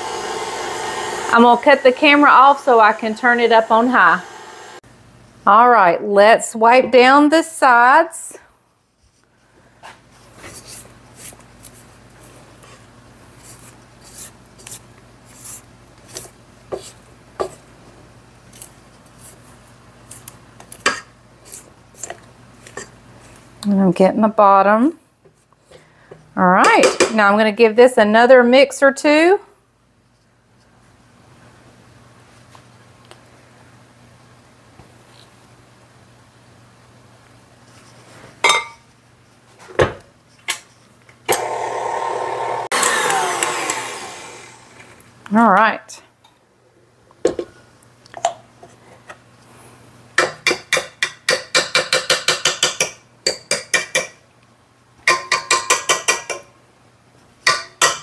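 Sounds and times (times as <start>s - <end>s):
stand mixer motor whine: 0.0s - 2.0s, 2.6s - 4.8s, 41.3s - 45.0s.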